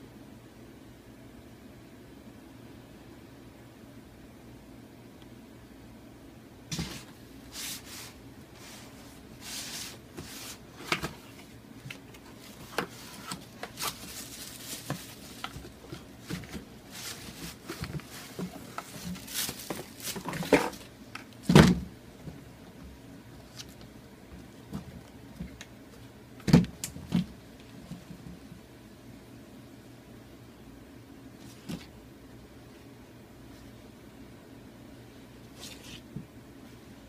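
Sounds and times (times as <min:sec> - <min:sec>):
tissue paper rustling: 0:06.7 - 0:11.5, 0:12.2 - 0:20.9.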